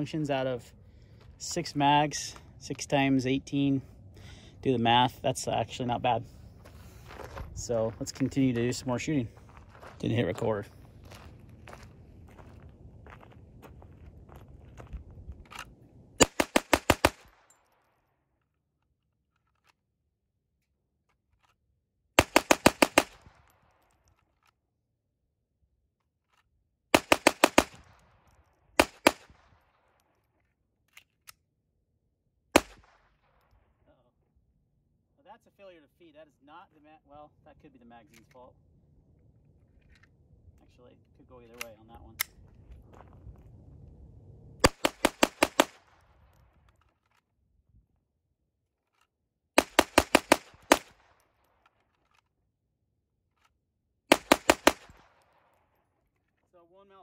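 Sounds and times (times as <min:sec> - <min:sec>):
pistol shots: 0:16.2 - 0:17.5, 0:22.2 - 0:23.6, 0:27.0 - 0:28.1, 0:28.8 - 0:29.8, 0:32.6 - 0:33.3, 0:44.6 - 0:46.0, 0:49.6 - 0:51.2, 0:54.1 - 0:55.6.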